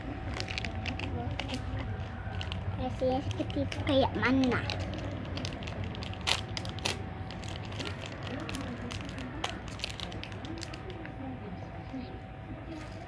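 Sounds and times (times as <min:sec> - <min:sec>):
plastic wrapper tearing and crinkling: 0:00.3 - 0:02.6, 0:04.4 - 0:10.9.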